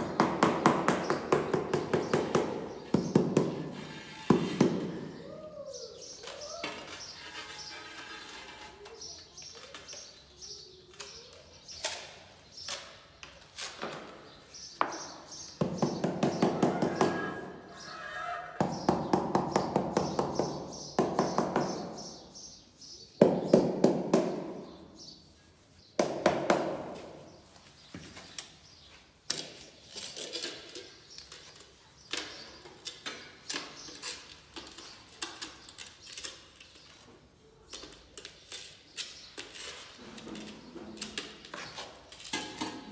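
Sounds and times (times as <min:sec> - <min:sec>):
trowel scraping mortar: 0:06.9 - 0:09.0.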